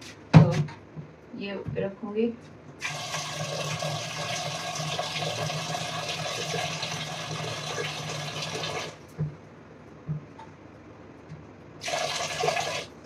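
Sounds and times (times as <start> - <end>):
water running from tap into vessel: 2.8 - 9.0, 11.8 - 13.0.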